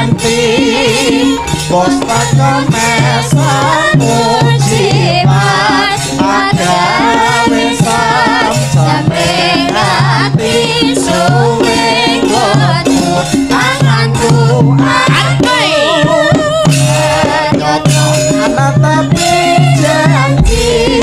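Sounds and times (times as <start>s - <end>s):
gamelan music: 0.0s - 15.6s, 16.6s - 21.0s
woman singing into a microphone: 0.0s - 21.0s
low struck notes: 20.2s - 21.0s.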